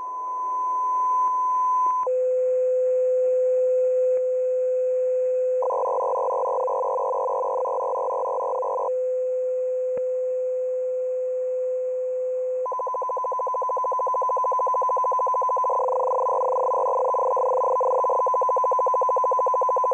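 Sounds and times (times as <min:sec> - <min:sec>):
burst of multiple data tones: 0:05.6 - 0:08.9, 0:12.7 - 0:19.9.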